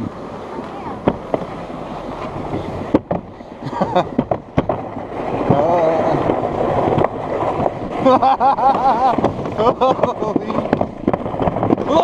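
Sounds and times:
sled rumbling on track: 0:00.0 - 0:12.0
sharp knocks: 0:02.9 - 0:03.3, 0:04.1 - 0:04.9.

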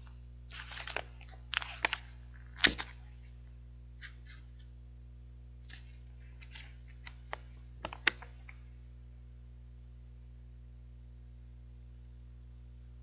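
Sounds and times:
plastic packaging crackling: 0:00.0 - 0:03.3, 0:05.6 - 0:08.6
low steady hum: 0:00.0 - 0:13.0.

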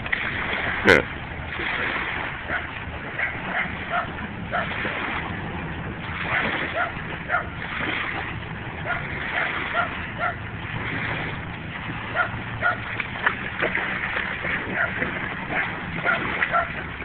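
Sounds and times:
dogs barking: 0:02.4 - 0:04.8, 0:06.2 - 0:07.6, 0:08.8 - 0:10.5, 0:12.1 - 0:12.9, 0:14.6 - 0:16.8.

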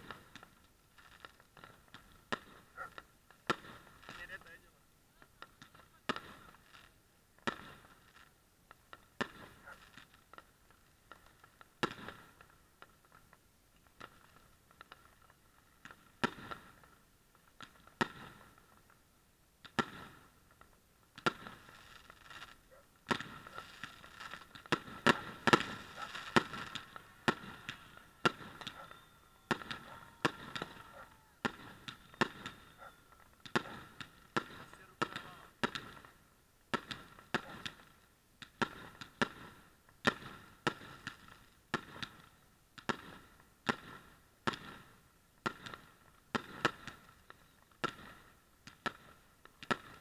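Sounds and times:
fireworks bangs and crackle: 0:00.0 - 0:50.0.

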